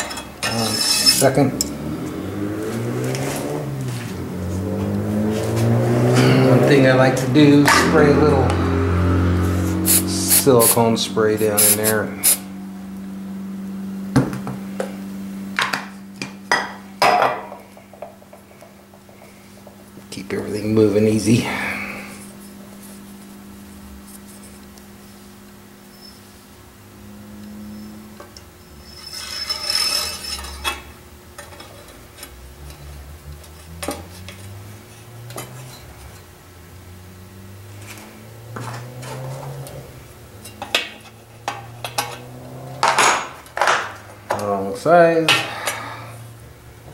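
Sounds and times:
metal parts clinking: 0:00.0 - 0:01.7
steady low hum: 0:00.0 - 0:46.9.

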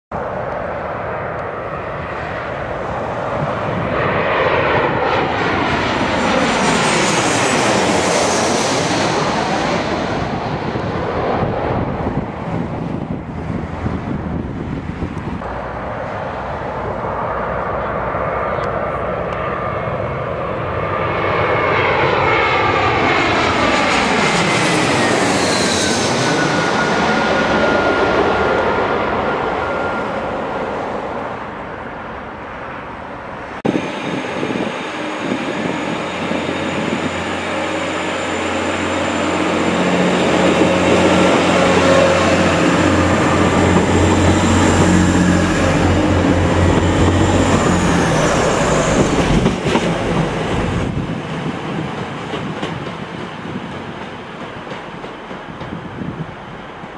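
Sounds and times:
airliner engine whine overhead: 0:00.1 - 0:56.9
thin high train whine: 0:00.2 - 0:56.9
diesel train engines humming: 0:26.1 - 0:56.9.

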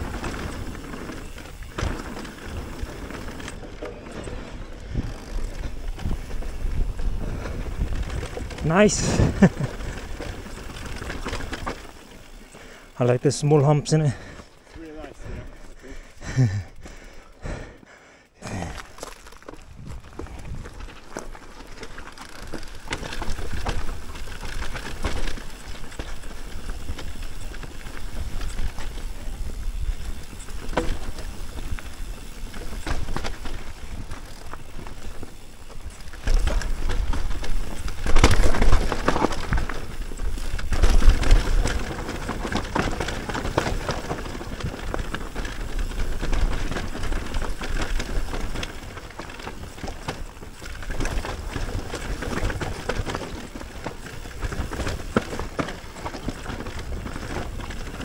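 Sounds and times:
tyres rolling over dirt and rocks: 0:00.0 - 0:17.4, 0:18.5 - 0:58.0
bike rattling over bumps: 0:00.0 - 0:17.8, 0:18.5 - 0:58.0.

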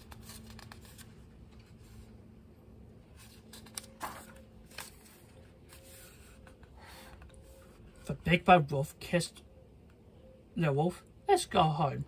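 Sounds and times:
book pages turning: 0:00.0 - 0:02.3, 0:03.0 - 0:08.2
faint steady hum: 0:00.0 - 0:12.0.

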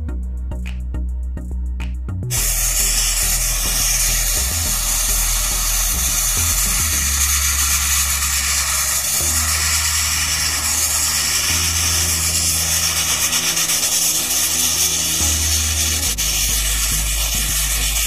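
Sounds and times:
background music with bass: 0:00.0 - 0:18.0
sandblasting nozzle hissing: 0:02.3 - 0:18.0.

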